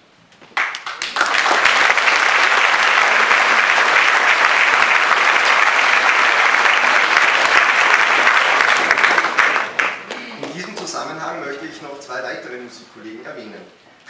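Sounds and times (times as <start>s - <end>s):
audience applause: 0.6s - 11.1s.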